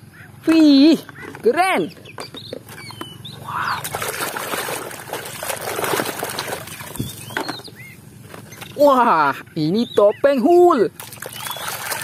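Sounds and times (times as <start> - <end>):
water sloshing in a plastic tub: 2.4 - 9.0, 10.7 - 12.0.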